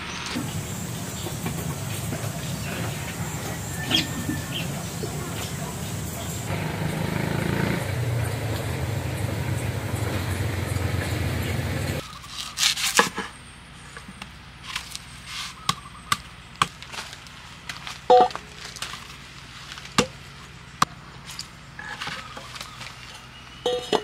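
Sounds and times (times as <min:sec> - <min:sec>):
machete chopping coconut on wood: 0:15.6 - 0:17.0, 0:19.9 - 0:20.2.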